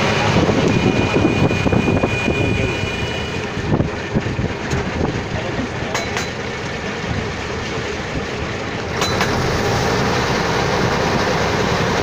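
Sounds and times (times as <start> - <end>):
boat engine running: 0.0 - 12.0
water along boat hull: 0.0 - 12.0.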